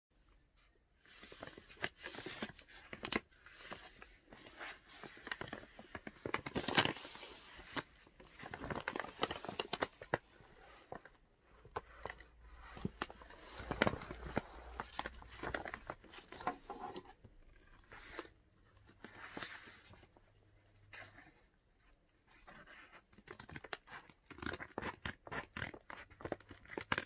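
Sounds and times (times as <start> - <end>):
paper envelope crinkling: 1.1 - 20.1.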